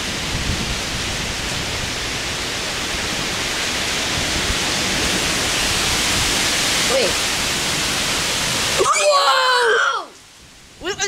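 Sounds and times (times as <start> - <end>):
heavy rain pouring: 0.0 - 11.0.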